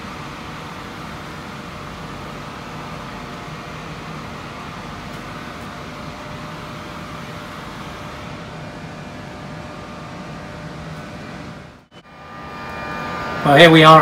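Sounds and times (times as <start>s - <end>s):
mechanical hum and hiss: 0.0s - 14.0s.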